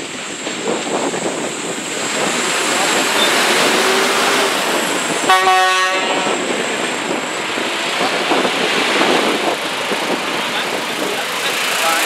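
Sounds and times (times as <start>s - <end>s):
truck tyre and road noise: 0.0s - 12.0s.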